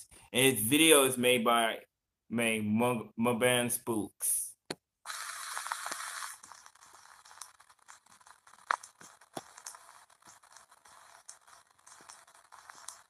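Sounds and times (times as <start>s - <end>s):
crackles and clicks: 5.1s - 13.0s.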